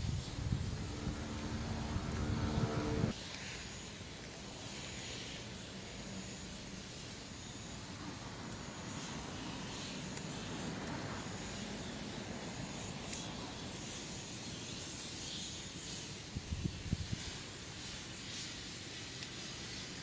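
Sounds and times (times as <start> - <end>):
low rumble with hiss: 0.0 - 3.2.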